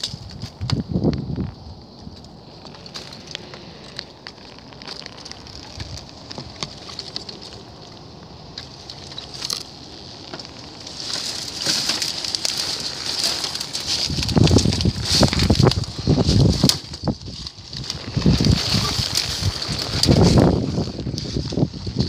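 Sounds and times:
dry leaves and twigs crackling: 0.0 - 22.0.

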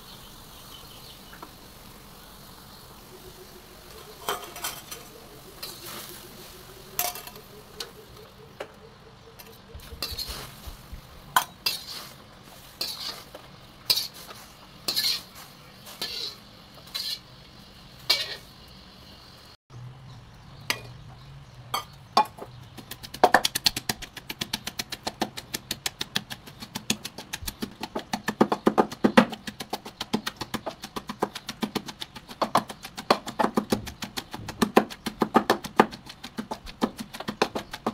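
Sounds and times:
metal spatula scraping a wok: 4.0 - 8.0, 9.5 - 17.4, 18.0 - 18.5
pestle pounding in stone mortar: 22.2 - 37.9.

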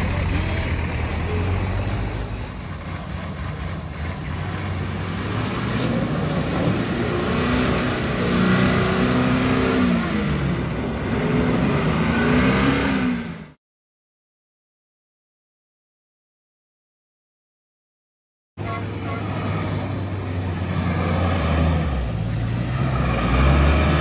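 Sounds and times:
engine revving under load: 0.0 - 13.6, 18.6 - 24.0.

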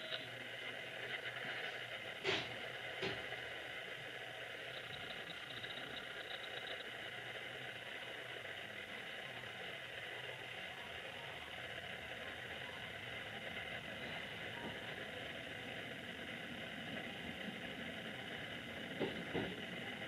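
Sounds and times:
train equipment hum: 0.0 - 20.0
fast high ticks: 4.7 - 7.2.

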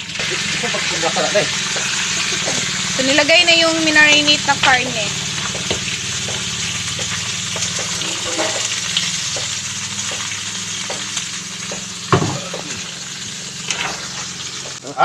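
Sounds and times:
meat frying in pan: 0.0 - 14.8
thump: 12.1 - 12.4.

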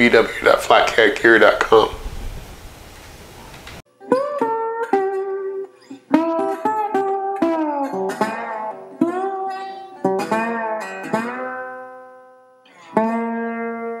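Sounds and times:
plucked strings music: 3.9 - 14.0.

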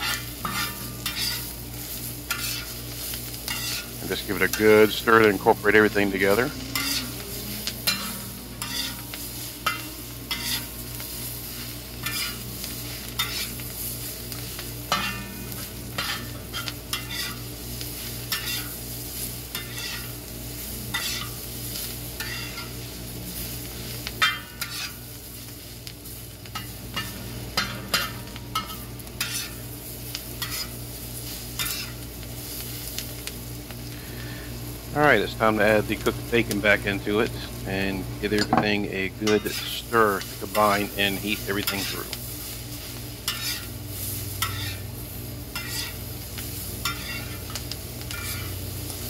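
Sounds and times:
metal utensil scraping steel: 0.0 - 1.5, 2.3 - 2.8, 3.4 - 13.7, 14.9 - 17.5, 19.5 - 20.1, 22.2 - 22.8, 24.2 - 25.0, 26.5 - 29.6, 43.2 - 43.7, 44.4 - 44.9, 45.5 - 46.0, 46.8 - 48.5
cabbage sizzling: 0.0 - 49.0.

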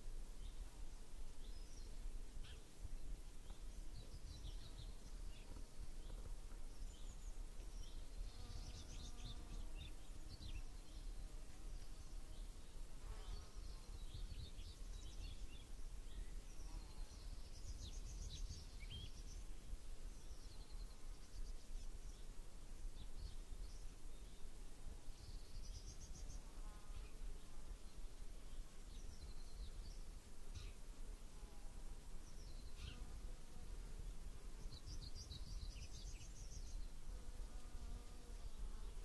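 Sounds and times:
insect buzzing: 4.0 - 15.5, 30.5 - 39.0.

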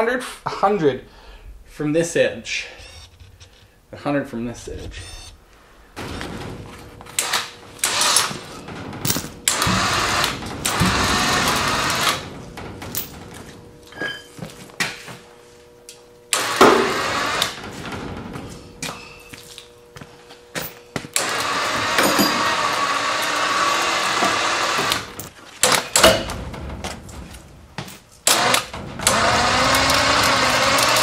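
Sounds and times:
faint steady hum: 0.0 - 29.0
metal chain clanking and scraping: 6.0 - 14.4, 20.6 - 22.6.

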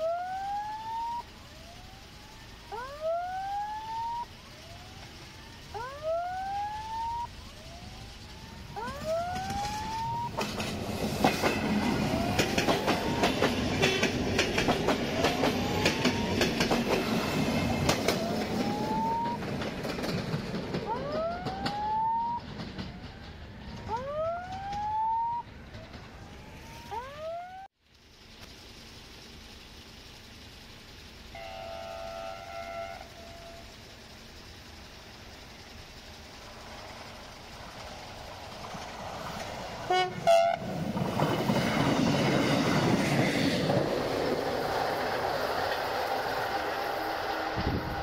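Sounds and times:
electronic siren wail rising: 0.0 - 10.6, 11.7 - 14.0, 14.9 - 19.4, 20.9 - 27.7
diesel train engine: 0.0 - 48.0
train wheels on rails: 0.0 - 48.0
train horn toots: 13.8 - 14.2, 31.3 - 33.8, 39.9 - 40.7.

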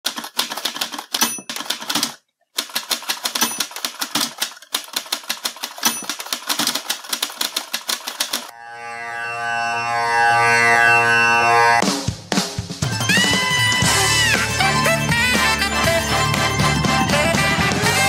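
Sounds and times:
rapid even clicking: 0.0 - 8.5.

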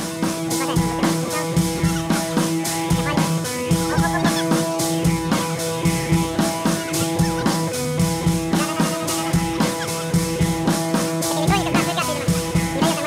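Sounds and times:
guitar: 0.0 - 13.0
steady drum beat: 0.0 - 13.0.

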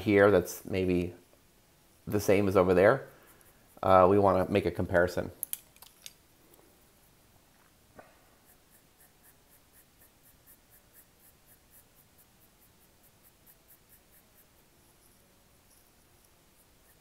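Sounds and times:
pencil scratching on paper: 8.4 - 17.0.

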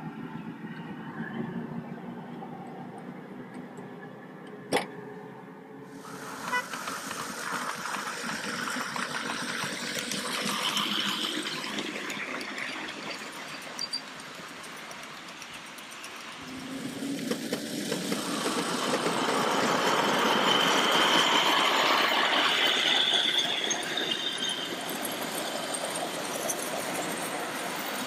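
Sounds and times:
train wheels clattering on rails: 6.0 - 28.0.

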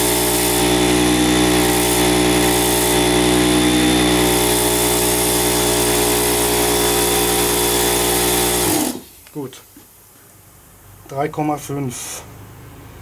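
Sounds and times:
air compressor running: 0.0 - 9.3.

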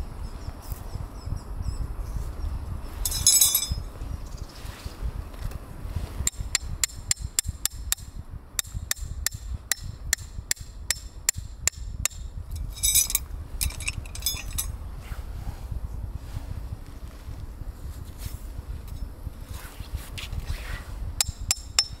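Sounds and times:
metallic jingle: 3.0 - 3.8, 12.6 - 14.7
hammer striking tent stakes: 6.2 - 12.3, 21.2 - 22.0.

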